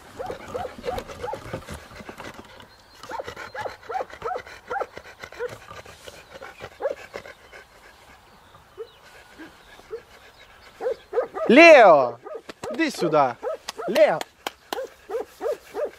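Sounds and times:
dog yelping barks: 0.2 - 1.5, 3.1 - 4.9, 6.8 - 7.0, 10.8 - 14.1, 14.7 - 15.9.

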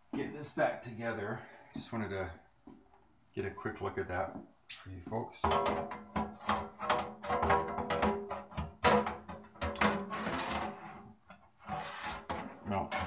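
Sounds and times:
metal cover scraping and knocking: 5.4 - 13.0.

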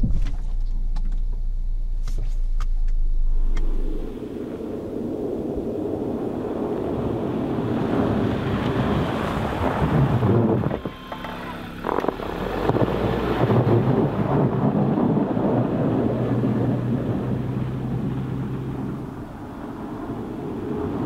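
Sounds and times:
car tyres on snow: 0.0 - 21.0
road rumble inside car: 0.0 - 21.0
electric parking brake: 8.6 - 13.6.

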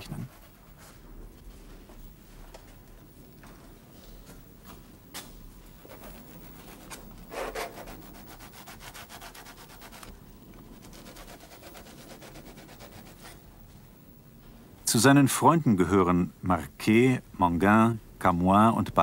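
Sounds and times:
paintbrush scrubbing on canvas: 5.8 - 13.4.

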